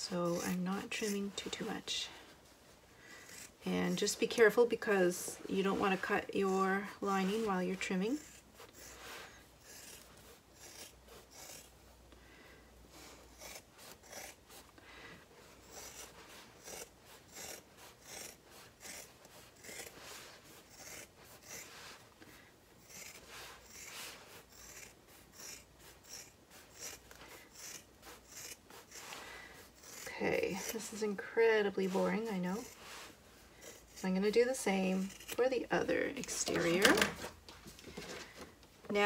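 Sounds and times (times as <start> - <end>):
scissors snipping fabric: 0.0 - 1.8, 9.6 - 11.7, 13.1 - 14.7, 15.6 - 21.7, 22.8 - 31.2, 33.6 - 37.3.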